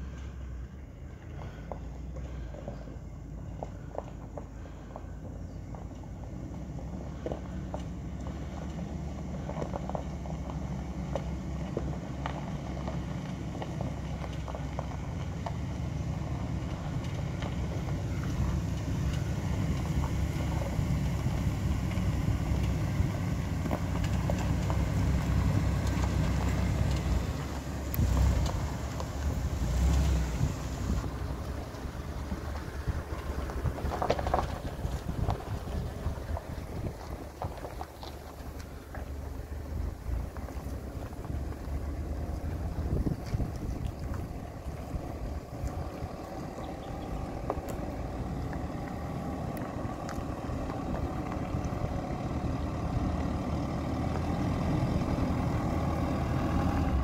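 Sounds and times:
vehicle engine low rumble: 0.0s - 57.0s
wind buffeting microphone: 26.1s - 38.6s, 39.4s - 53.1s.

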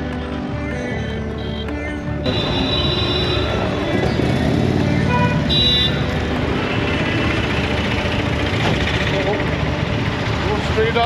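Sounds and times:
road traffic: 0.0s - 11.0s
motorcycle engine running: 0.9s - 11.0s
horn toot: 2.2s - 4.4s, 5.0s - 6.2s.

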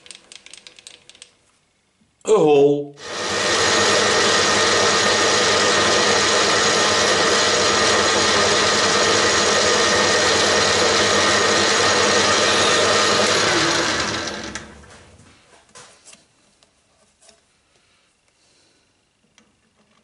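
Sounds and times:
metal lathe running: 3.0s - 14.8s.

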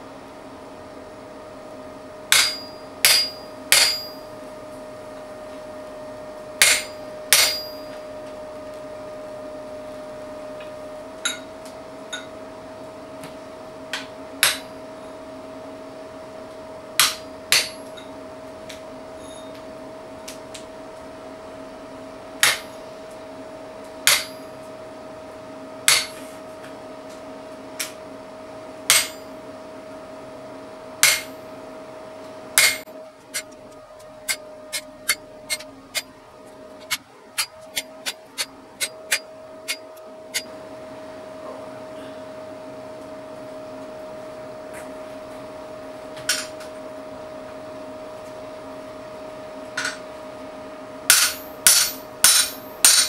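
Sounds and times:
steady hum: 0.0s - 11.4s, 32.6s - 41.3s
hammer striking chisel on steel: 2.3s - 4.2s, 6.6s - 7.9s, 17.0s - 17.9s, 24.1s - 24.4s, 25.9s - 26.2s, 28.9s - 29.2s, 31.0s - 31.3s, 32.6s - 32.8s, 34.3s - 36.0s, 36.8s - 40.5s, 51.1s - 53.0s.

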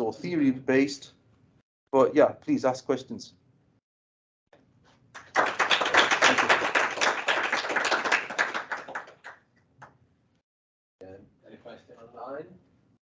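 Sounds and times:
hands clapping: 5.2s - 10.0s.

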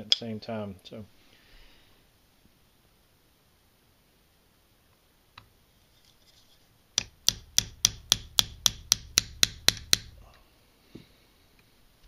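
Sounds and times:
hammer tapping metal punch: 7.0s - 10.2s.

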